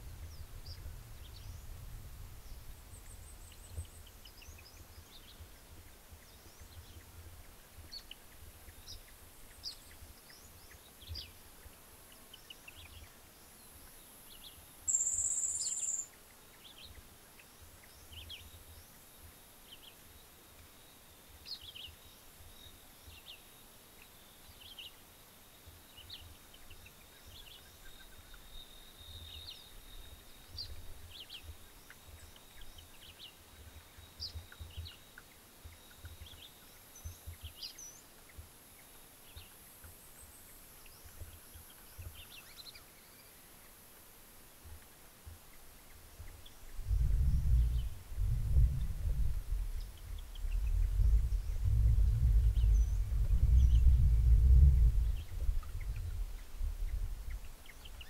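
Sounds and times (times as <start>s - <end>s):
wild birds chirping: 0.0s - 58.0s
low rumble: 46.8s - 57.4s.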